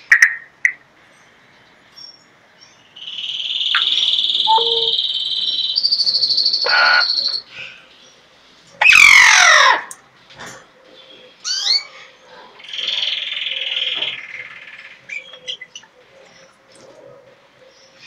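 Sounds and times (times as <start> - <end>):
parrot harsh call: 3.7 - 5.2, 6.4 - 7.5, 8.8 - 9.9
parrot whistling: 3.7 - 5.9.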